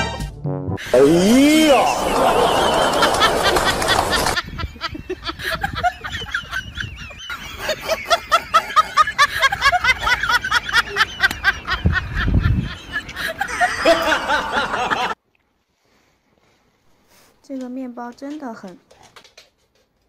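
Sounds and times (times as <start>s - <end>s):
music: 0.0s - 0.8s
snickering laughter: 1.9s - 15.2s.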